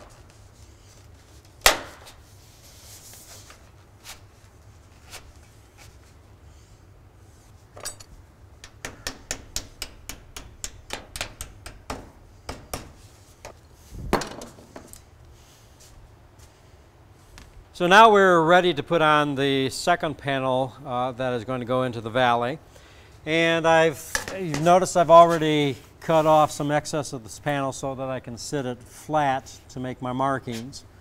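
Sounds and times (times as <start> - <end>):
hammer tapping steel roofing panel: 8.6 - 13.0.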